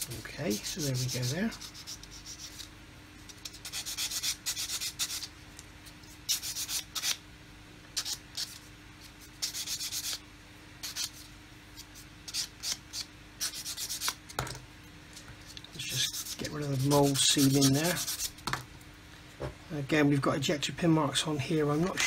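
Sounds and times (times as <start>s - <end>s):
sanding stick scraping plastic: 0.0s - 2.7s, 15.8s - 18.4s.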